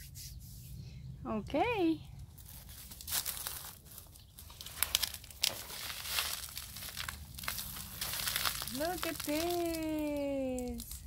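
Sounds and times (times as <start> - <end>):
cabbage leaves rustling and crackling: 2.3 - 11.0
leaves snapping: 2.4 - 11.0.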